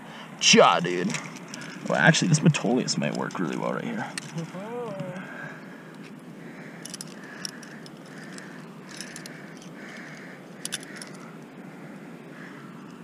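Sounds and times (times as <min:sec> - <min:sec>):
climbing gear clinking: 0:01.0 - 0:04.6, 0:06.8 - 0:11.4.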